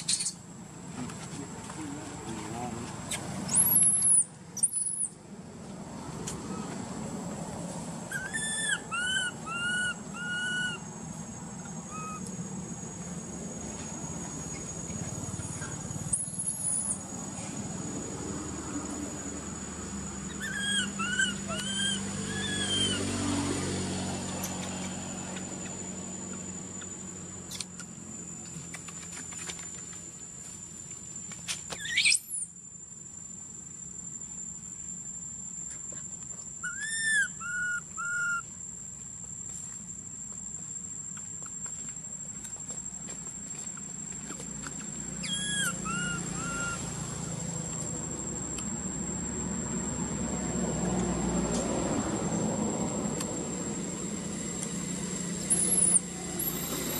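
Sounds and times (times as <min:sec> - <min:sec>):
whistle-like animal calls: 0:20.3 - 0:23.0, 0:36.6 - 0:38.4, 0:45.2 - 0:46.8.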